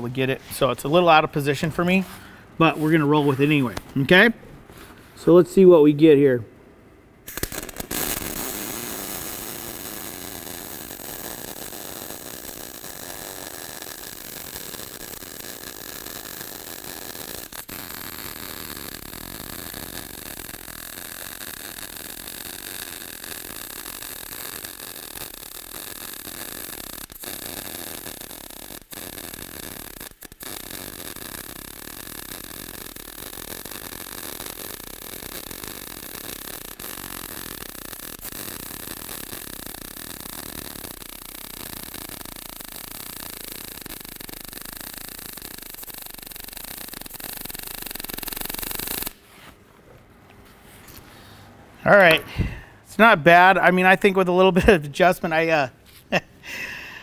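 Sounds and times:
welding arc hissing: 7.3 - 49.2.

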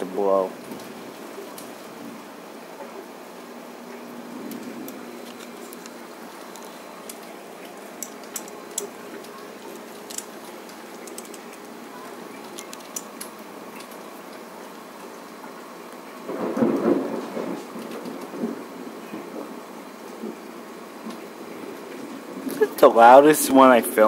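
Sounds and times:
steady downpour of rain: 0.0 - 24.0
loud rumble of thunder: 16.2 - 20.4.

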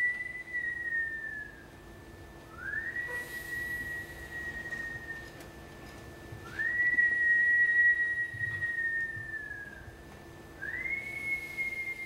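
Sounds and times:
long whistled notes: 0.0 - 1.8, 2.5 - 5.4, 6.4 - 10.0, 10.6 - 12.0.

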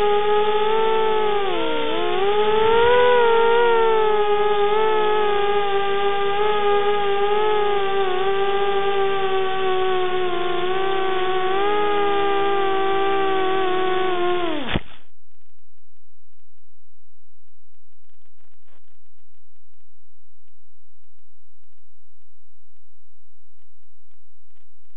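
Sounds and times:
quadcopter motors whining: 0.0 - 15.0
low electrical hum: 0.0 - 16.0
crackling clicks: 14.4 - 15.1.

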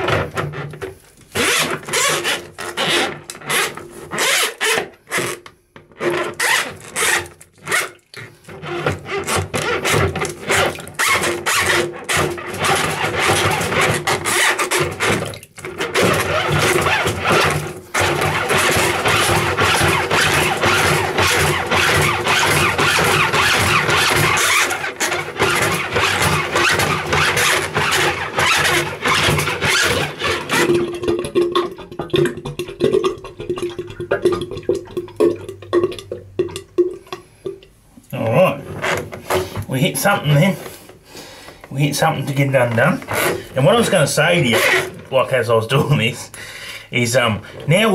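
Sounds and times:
drain snake cable rattling: 8.4 - 37.6
water draining with gurgling: 29.4 - 39.7.

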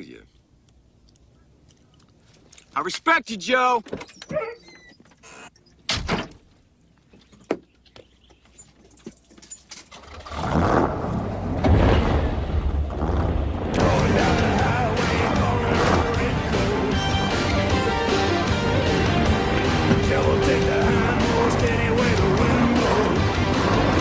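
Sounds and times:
car engine running: 13.8 - 24.0.

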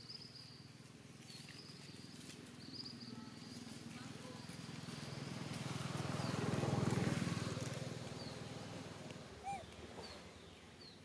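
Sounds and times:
motor vehicle passing by: 1.9 - 11.0
bird chirps: 9.4 - 11.0.

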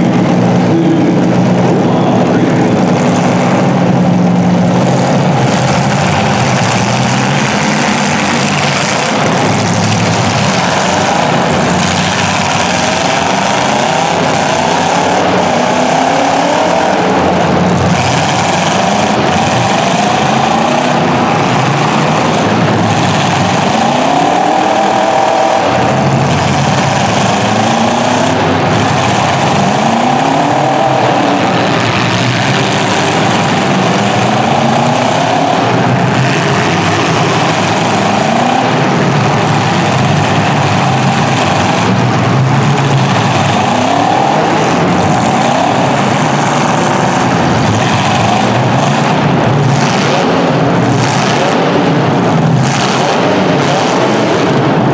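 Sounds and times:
car engines revving loudly: 0.0 - 54.9.

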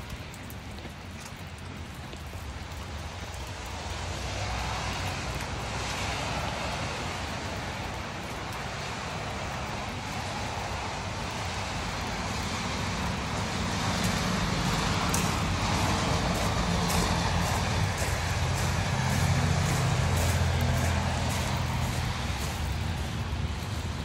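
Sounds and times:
footsteps on gravel: 13.4 - 24.0
vehicle engine running: 14.0 - 24.0.

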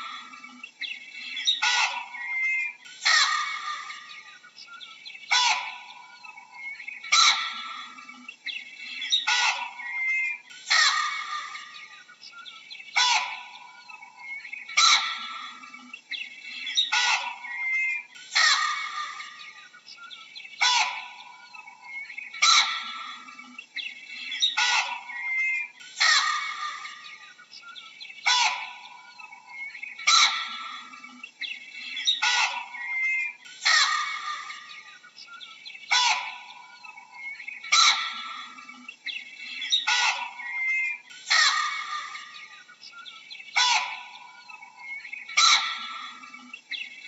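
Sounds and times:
birds chirping: 0.0 - 47.0
baboon barking calls: 1.4 - 4.2, 5.3 - 8.2, 9.1 - 11.9, 13.0 - 15.8, 16.6 - 19.6, 20.6 - 21.7, 22.4 - 23.5, 24.2 - 27.3, 28.2 - 31.2, 31.8 - 35.0, 35.9 - 38.8, 39.5 - 42.6, 43.6 - 46.5.

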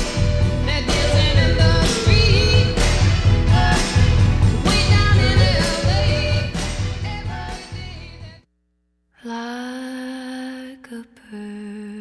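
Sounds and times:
person singing: 0.0 - 8.4, 9.2 - 12.0
steady bass beat: 0.0 - 8.4.

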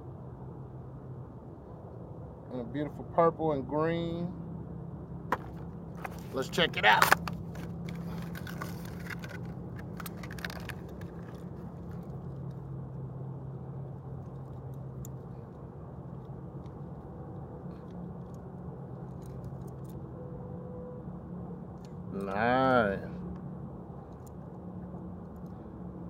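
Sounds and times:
steady low hum: 0.0 - 26.0
plastic packaging crinkling: 7.0 - 12.0.

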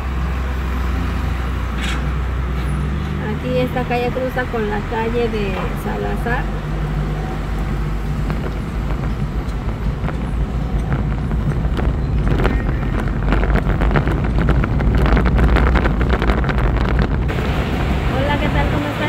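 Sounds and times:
car engine and road rumble: 0.0 - 19.0
small knocks and rattles: 7.8 - 17.3.

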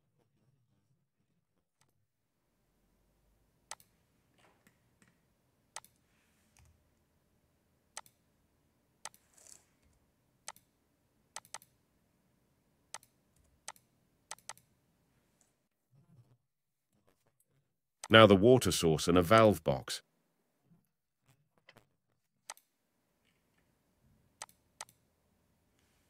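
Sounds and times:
computer mouse clicking: 3.7 - 3.9, 5.8 - 6.0, 8.0 - 8.2, 9.0 - 9.6, 10.5 - 10.7, 11.4 - 11.8, 12.9 - 14.7, 24.4 - 25.0.

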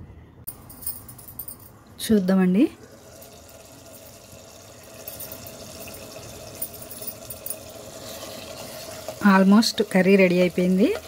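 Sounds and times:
curry bubbling in a pan: 7.2 - 11.0
spatula stirring curry: 7.7 - 11.0.

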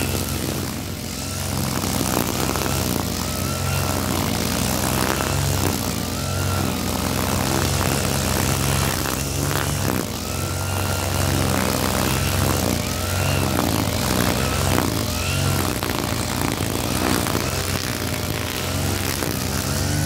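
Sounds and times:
brush cutter engine whining: 0.0 - 20.0.

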